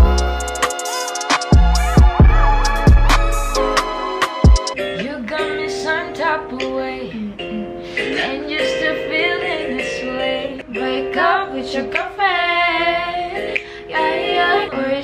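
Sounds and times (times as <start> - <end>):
drum-backed music track: 0.0 - 5.1
woman singing pop song: 4.8 - 15.0.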